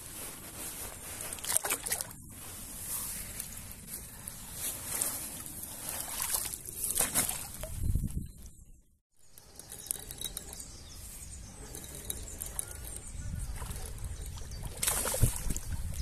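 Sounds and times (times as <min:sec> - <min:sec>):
rustling and handling noise: 0:00.0 - 0:08.2
fish splashing in water: 0:14.4 - 0:15.9.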